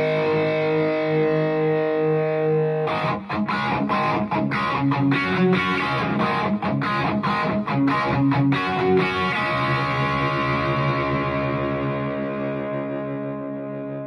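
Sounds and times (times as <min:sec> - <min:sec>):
electric guitar chords: 0:00.0 - 0:14.0.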